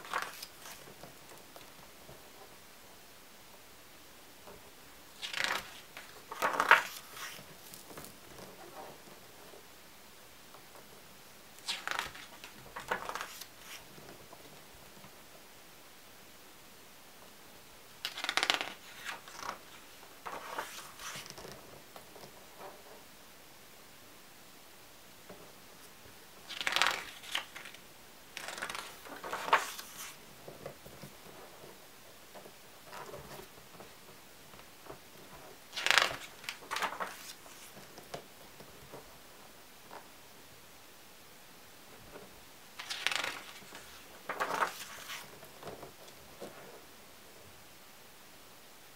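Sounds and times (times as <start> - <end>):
paper page crackling: 0.0 - 1.8, 5.2 - 8.9, 11.6 - 14.0, 18.0 - 22.2, 26.4 - 31.7, 34.8 - 38.3, 42.8 - 46.6
page rustling: 0.0 - 1.9, 5.1 - 9.2, 11.6 - 15.1, 18.0 - 23.0, 25.8 - 31.8, 32.4 - 39.1, 42.2 - 46.8
light ticks of paper settling: 35.8 - 38.3.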